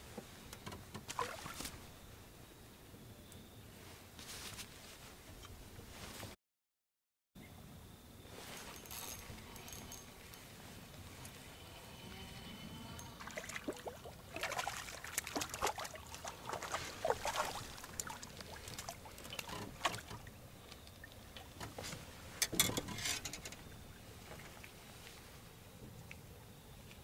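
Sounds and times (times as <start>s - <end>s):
water splashing and dripping: 1.1s - 1.8s, 13.2s - 21.9s.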